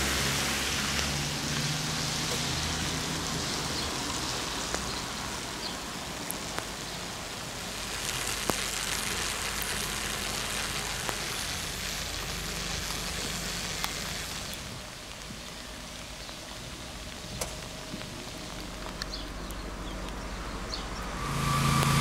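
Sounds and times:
rain falling on puddles: 0.0 - 22.0.

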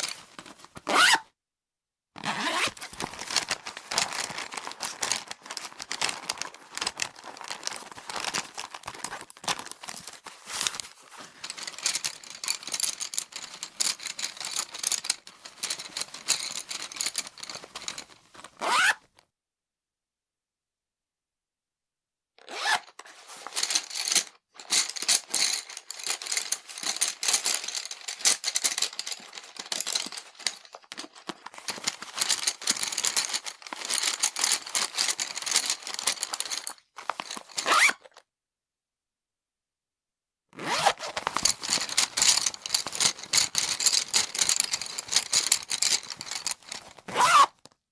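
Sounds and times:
pencils rustling and rattling: 0.0 - 1.1, 2.3 - 18.6, 22.8 - 38.2, 40.7 - 47.8
zip rasping: 2.2 - 2.7, 40.6 - 41.2, 47.1 - 47.5.

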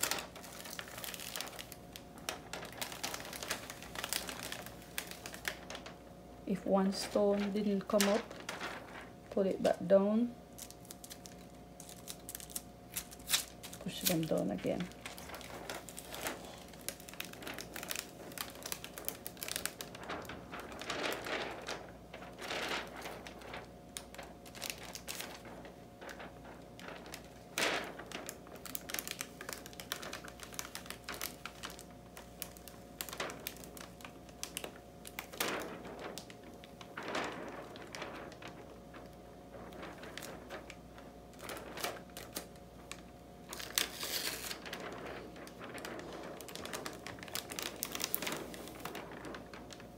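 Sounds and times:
sticky tape peeling: 10.6 - 14.2, 43.5 - 49.4.

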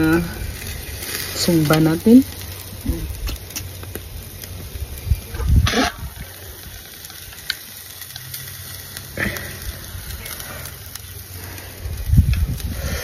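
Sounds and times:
fish grilling low rumble: 0.0 - 13.0.

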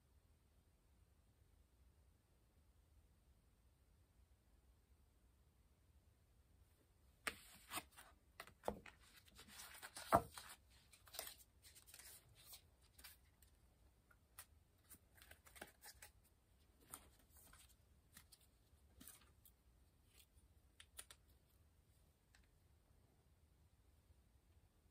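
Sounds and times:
cards clicking and rustling: 7.3 - 13.3, 14.3 - 16.2.

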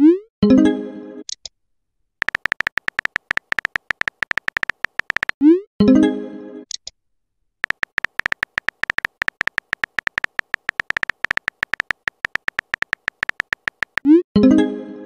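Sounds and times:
phone keyboard typing clicks: 2.2 - 5.4, 7.6 - 14.1.

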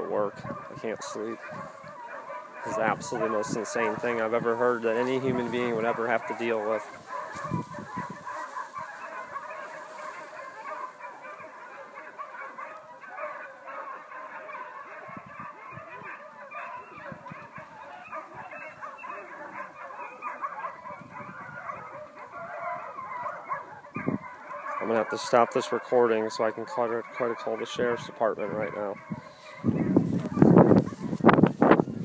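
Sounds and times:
many dogs barking: 0.0 - 32.0.

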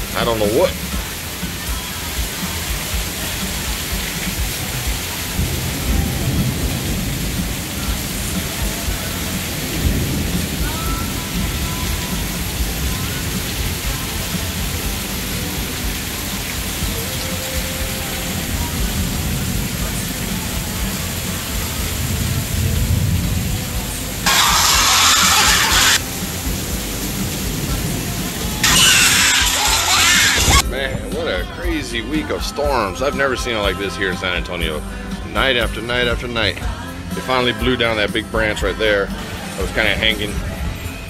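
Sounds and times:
heavy rain pouring: 0.0 - 32.7
thunder rolling: 5.4 - 8.6.

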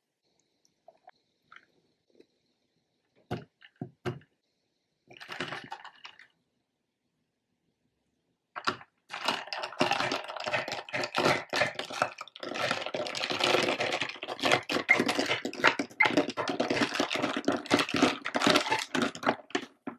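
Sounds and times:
ice cubes clinking in a glass: 8.6 - 19.7.

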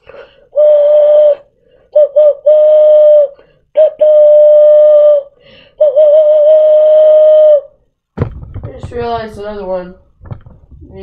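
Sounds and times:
cupped-hand whistle hooting: 0.5 - 7.8.

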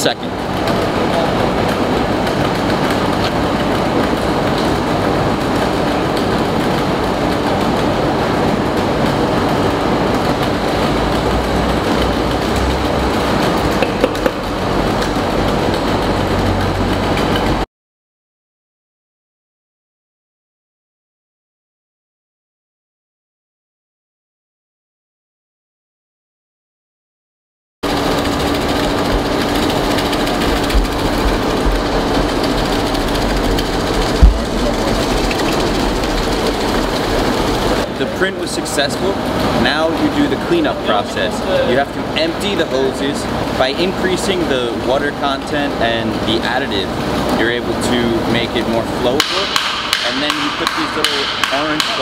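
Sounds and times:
machinery running: 0.0 - 17.7, 27.8 - 52.0
low hum: 27.8 - 37.9.

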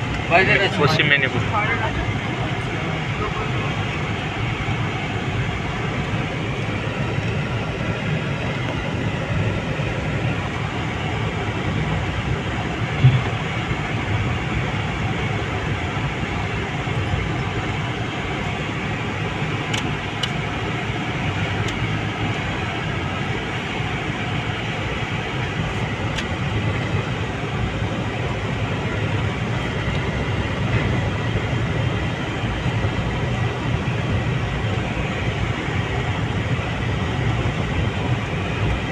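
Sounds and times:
vehicle cabin engine rumble: 0.0 - 38.9.

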